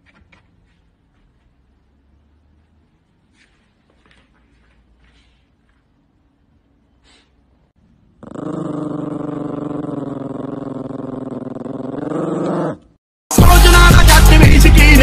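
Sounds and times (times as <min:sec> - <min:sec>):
small dog growling: 0:08.2 - 0:13.0.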